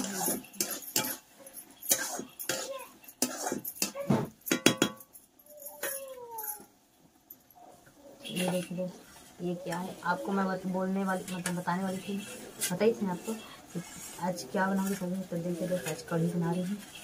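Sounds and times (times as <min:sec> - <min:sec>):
metal spoon clinking on steel pan: 0:00.0 - 0:06.2.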